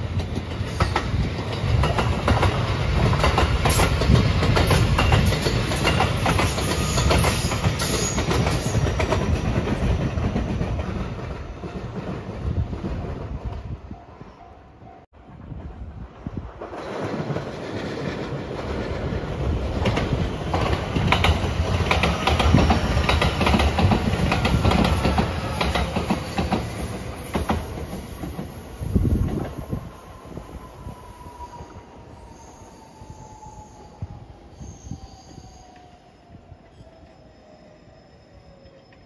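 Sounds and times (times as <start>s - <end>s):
train wheels clicking over rail joints: 0.1s - 13.1s, 16.6s - 28.6s.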